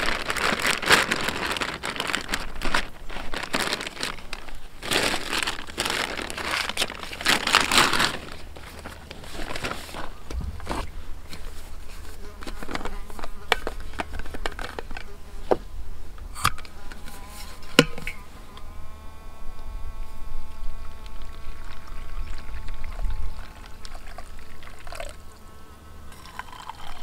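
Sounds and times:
food packaging rustling: 0.0 - 15.2
steady buzzing tone: 10.0 - 27.0.

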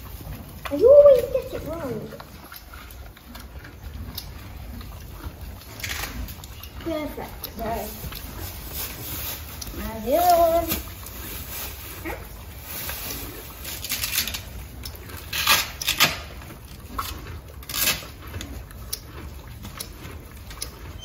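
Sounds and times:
short rasping rips: 15.3 - 16.4, 17.7 - 18.2.

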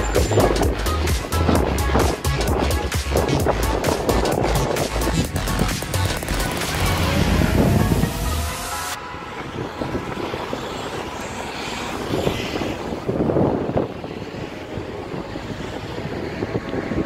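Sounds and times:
cars driving by: 0.0 - 17.0.

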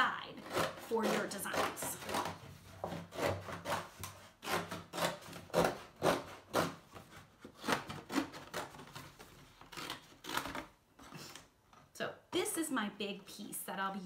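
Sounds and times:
scissors cutting cardboard: 0.3 - 11.4.

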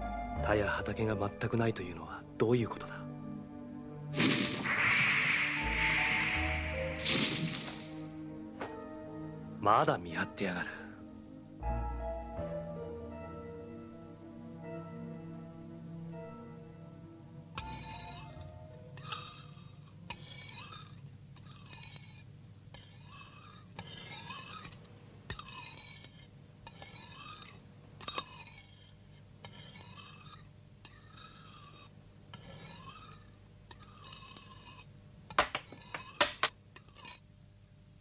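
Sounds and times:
soft rasping: 17.6 - 36.2
metal clinking on wooden floor: 34.8 - 36.6.

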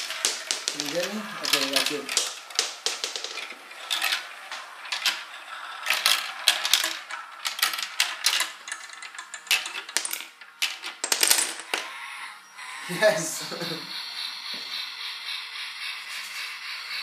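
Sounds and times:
marbles clattering down plastic run: 0.0 - 12.3.

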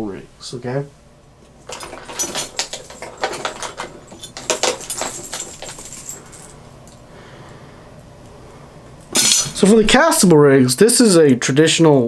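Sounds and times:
fishing tackle clicking and rattling: 1.7 - 7.0.

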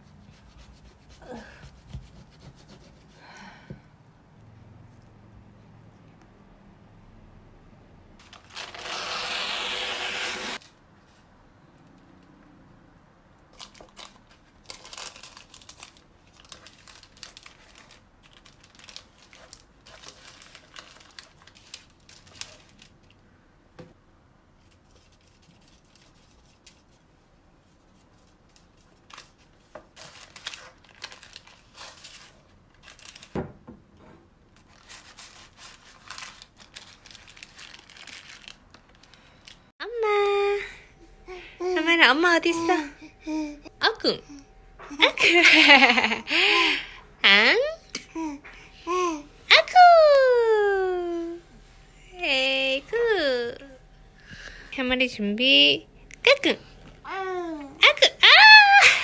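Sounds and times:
paper towel ripping: 8.2 - 10.8
paper rustling and crinkling: 8.2 - 11.3, 13.5 - 23.2, 24.6 - 33.4, 34.6 - 39.7.

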